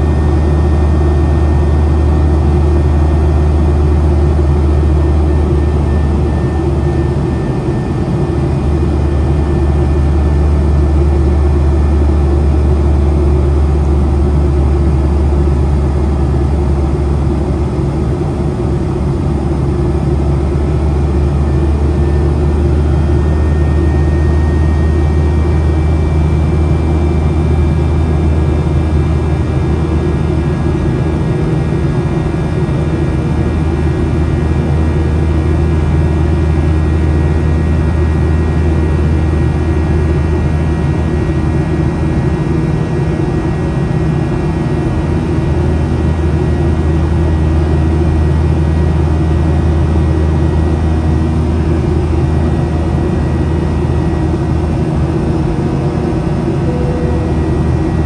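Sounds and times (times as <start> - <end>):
jet engine cabin drone: 0.0 - 58.0
faint whining tones: 53.0 - 58.0.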